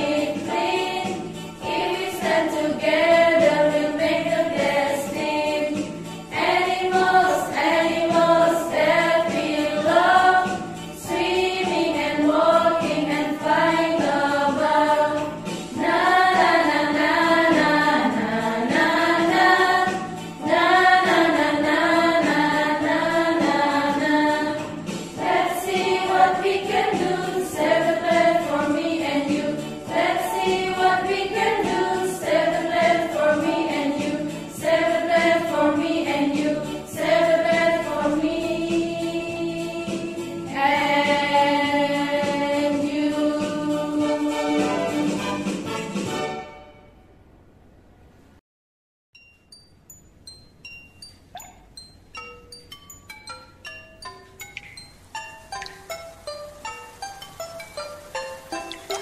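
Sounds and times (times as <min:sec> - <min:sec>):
women singing together: 0:00.0 - 0:45.0.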